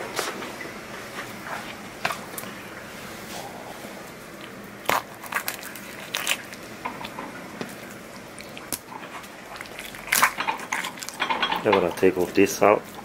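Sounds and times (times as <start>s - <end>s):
knife crunching through fish spines: 4.8s - 6.6s.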